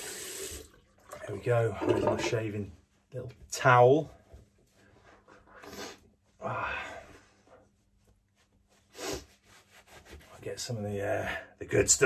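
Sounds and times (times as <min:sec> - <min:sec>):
towel rubbing and patting face: 0:02.8 - 0:06.4, 0:07.2 - 0:10.9.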